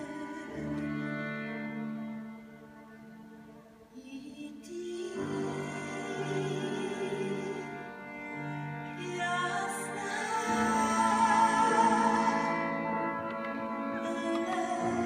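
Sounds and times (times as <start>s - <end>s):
woman singing folk song: 0.0s - 1.6s, 4.0s - 8.2s, 8.8s - 13.2s, 13.8s - 15.0s
violin piano and strings: 0.0s - 15.0s.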